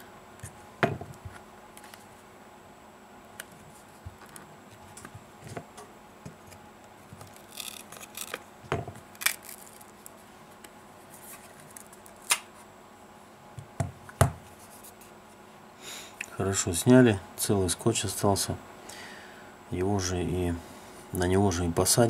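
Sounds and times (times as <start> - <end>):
adhesive tape crackling: 7.2 - 8.5, 9.1 - 10.2.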